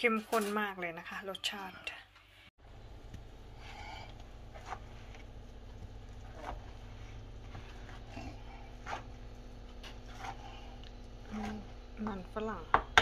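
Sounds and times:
low steady hum: 2.6 - 13.0
potato masher squishing potatoes: 2.9 - 13.0.

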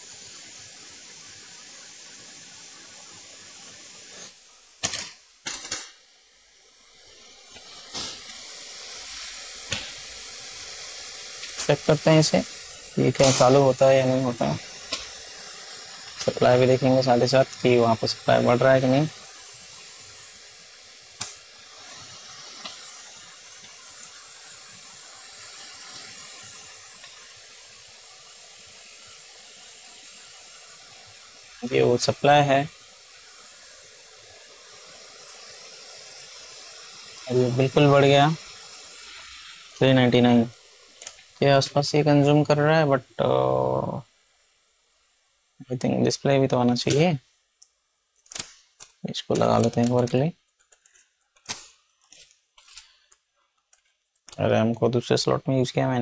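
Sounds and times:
hot air gun hissing: 0.0 - 50.4.

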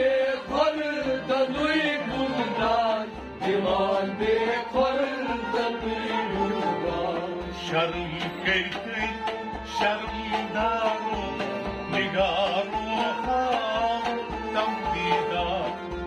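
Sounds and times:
harmonium chords: 0.0 - 16.0
man singing: 0.0 - 16.0.

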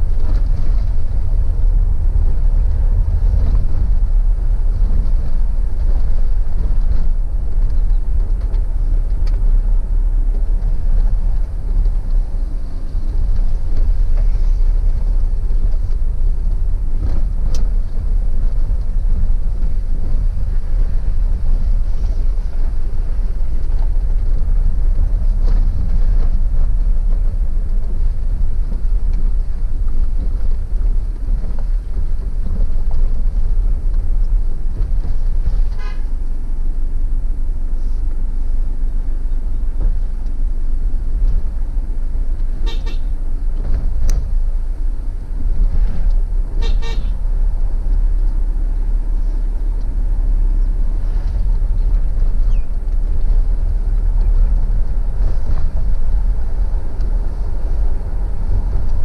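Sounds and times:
car road and engine rumble: 0.0 - 59.0
car horn toots: 42.6 - 43.1, 46.6 - 47.2.

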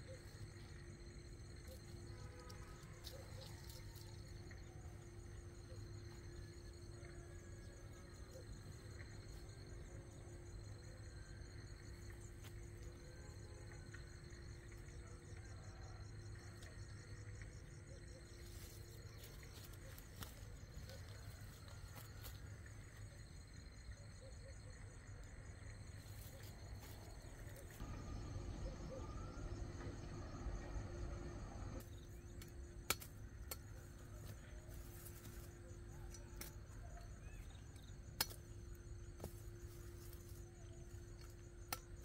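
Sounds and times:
faint low outdoor rumble: 0.0 - 42.0
knife chopping roots: 32.4 - 33.7.

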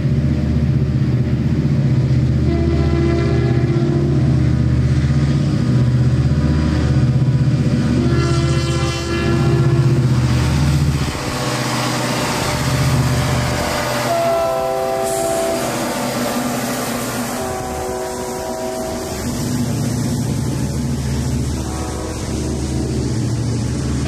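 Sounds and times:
diesel locomotives running past: 0.0 - 24.0
train air horn blasts: 2.4 - 4.4, 7.9 - 10.1, 12.0 - 19.7, 21.4 - 24.0
freight cars rolling: 4.4 - 24.0.

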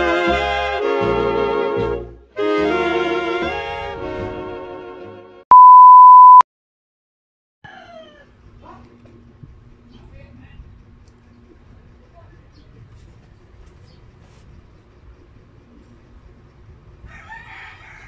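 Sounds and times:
test-tone beep: 5.5 - 6.4.

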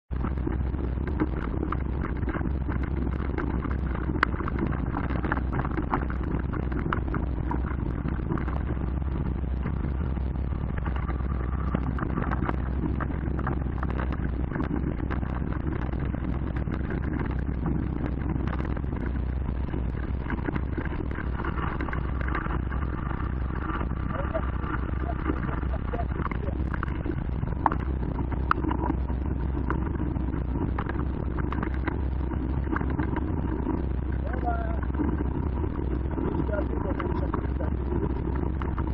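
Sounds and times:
bike tyres rumbling on dirt: 0.1 - 38.9.

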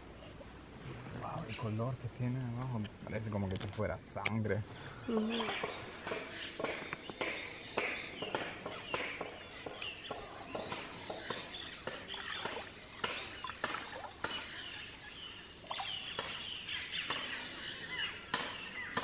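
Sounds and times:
birds calling: 0.0 - 19.0
paddles knocking against canoe hull: 5.5 - 14.6.

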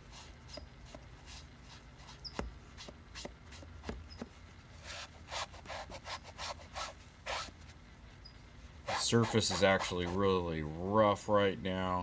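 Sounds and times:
eraser scrubbing pipe stem: 8.9 - 10.2.

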